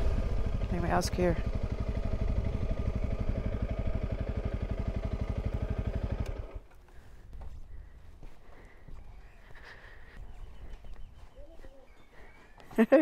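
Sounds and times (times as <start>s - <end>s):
motorcycle engine at low revs: 0.0s - 9.2s.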